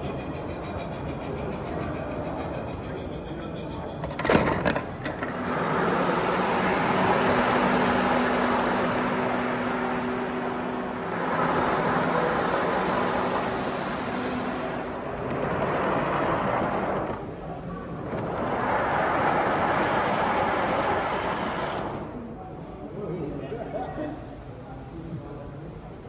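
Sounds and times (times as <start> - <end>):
model locomotive running hum: 0.0 - 22.8.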